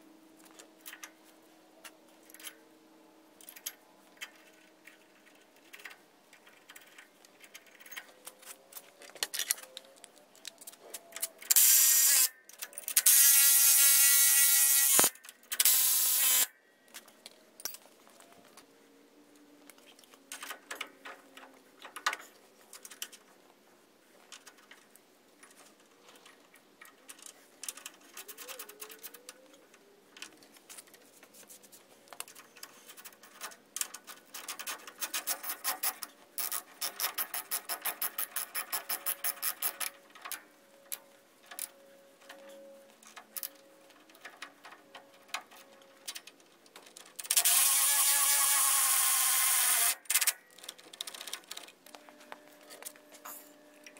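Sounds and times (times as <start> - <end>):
metal parts clinking: 3.4 - 13.2.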